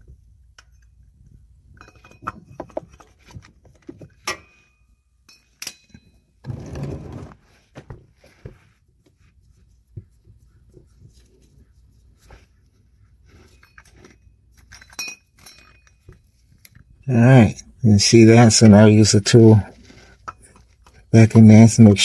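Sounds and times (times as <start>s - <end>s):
metallic clinks of wrench: 14.6s - 16.2s.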